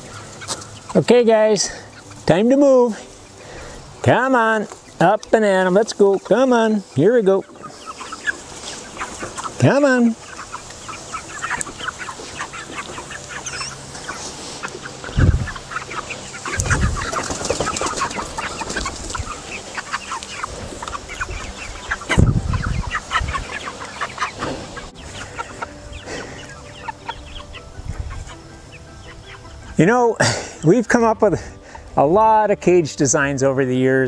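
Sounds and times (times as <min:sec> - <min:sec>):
chickens clucking: 0:00.0 - 0:34.0
low thumps: 0:15.1 - 0:15.7.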